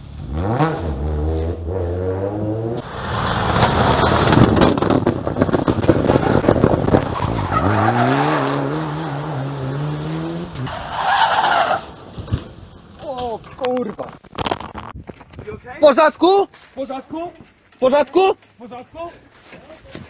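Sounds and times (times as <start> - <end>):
rally car engine pulling hard: 0.0 - 12.2
tyre and road noise: 0.0 - 20.0.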